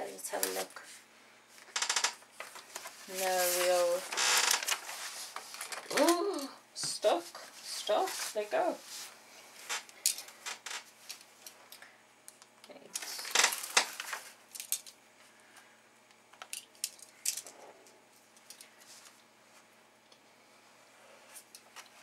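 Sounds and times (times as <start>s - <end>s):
plastic sheet rustling: 2.3s - 6.4s, 7.4s - 10.8s.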